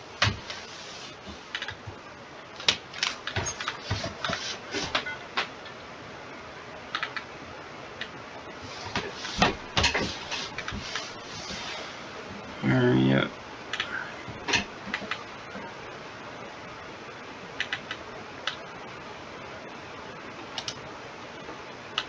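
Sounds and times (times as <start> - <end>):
keyboard and mouse clicks: 1.5 - 1.8, 6.9 - 7.3, 13.7 - 13.9, 17.6 - 18.6, 20.5 - 20.8.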